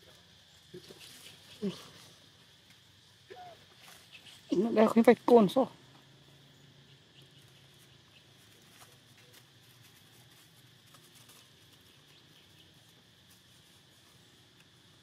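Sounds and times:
steady high hiss: 0.0s - 15.0s
faint ticks: 14.5s - 14.8s.

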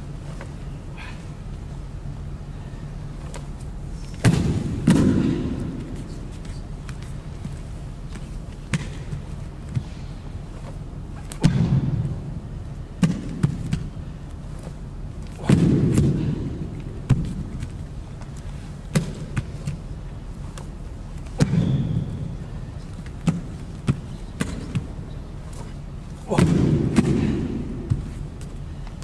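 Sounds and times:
arms slapping and thumping: 3.2s - 12.4s, 13.0s - 29.0s
heavy thuds: 3.2s - 29.0s.

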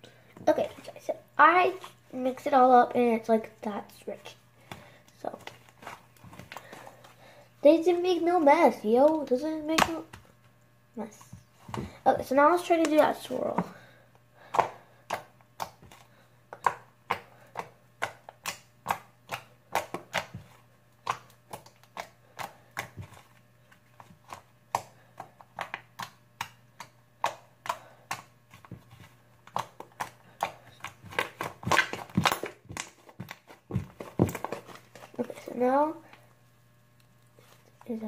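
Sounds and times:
slime squelching and popping: 24.0s - 35.2s.

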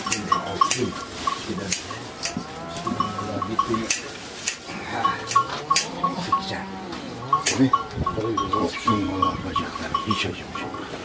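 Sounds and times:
sheep bleating: 1.4s - 3.9s, 4.7s - 10.2s.

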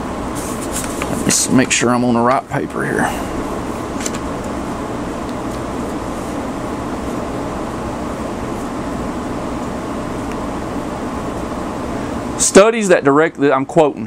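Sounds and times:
low rushing fan noise: 0.0s - 14.0s
paper rustling: 0.3s - 1.6s.

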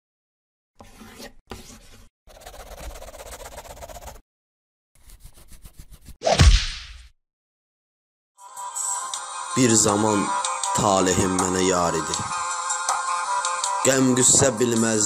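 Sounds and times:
scratchy scribbling noises: 0.8s - 4.2s, 5.0s - 6.2s.

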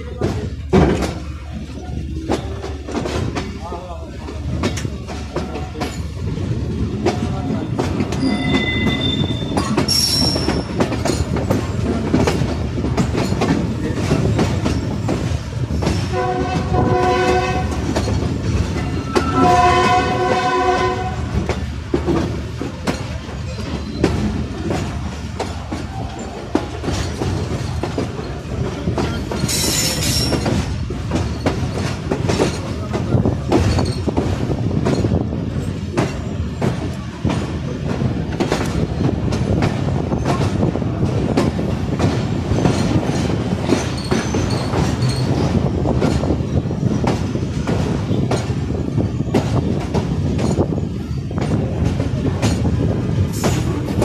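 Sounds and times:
train rumble: 0.0s - 54.0s
train wheels clattering over joints: 0.0s - 54.0s
wheels squealing: 8.2s - 11.2s, 23.4s - 24.4s, 42.6s - 45.6s.

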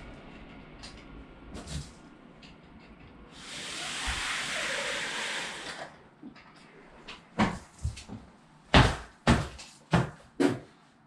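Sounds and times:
footsteps on hard floor: 7.4s - 10.6s.

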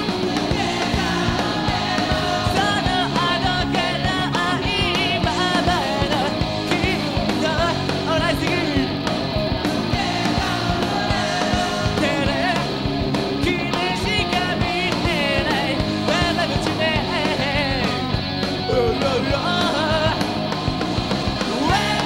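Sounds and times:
electric guitar: 0.0s - 22.0s
person singing: 0.6s - 8.9s, 13.4s - 20.3s, 21.6s - 22.0s.

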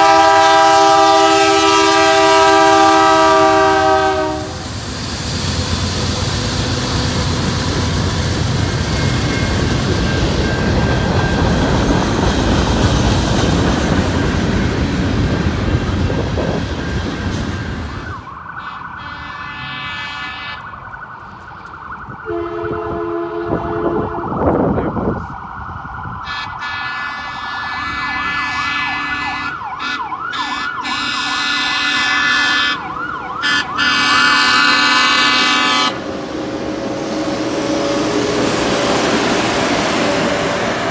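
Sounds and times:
train horn blasts: 0.0s - 4.7s, 18.6s - 20.7s, 22.2s - 24.6s, 26.2s - 32.8s, 33.4s - 36.1s
freight train rumbling: 0.0s - 21.4s, 22.0s - 40.9s
crossing bells ringing: 8.0s - 12.2s
siren wailing: 16.4s - 40.9s.

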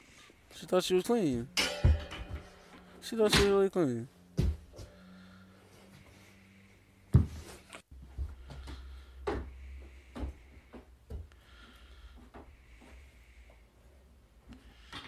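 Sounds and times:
soft knocks and bumps: 4.3s - 5.0s, 7.1s - 11.3s.

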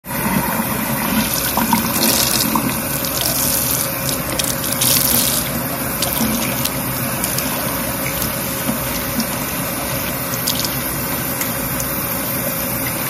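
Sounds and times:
tap water running onto hair: 0.2s - 13.0s.

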